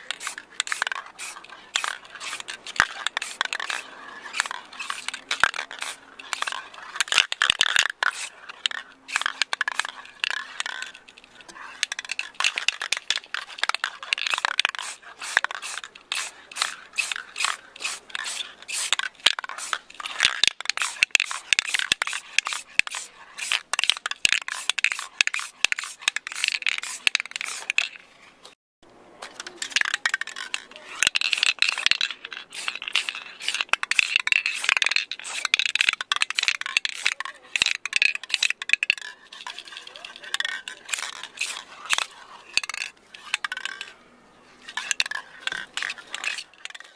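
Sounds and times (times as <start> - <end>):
spray paint hissing: 0.0 - 11.0, 11.6 - 28.0, 29.6 - 43.8, 44.6 - 46.9
spray can ball rattling: 0.0 - 28.0, 29.2 - 43.9, 44.6 - 46.9.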